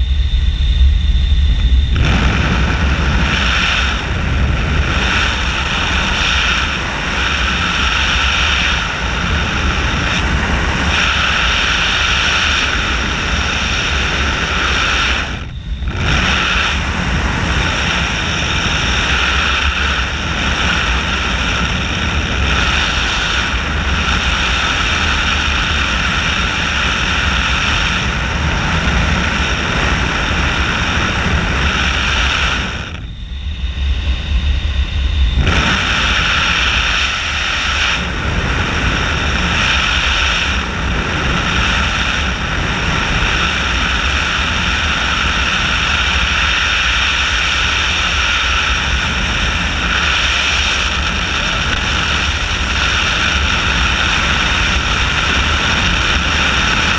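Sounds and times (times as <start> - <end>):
constant hum: 0.0 - 56.9
rush of air in glider cockpit: 0.0 - 56.9.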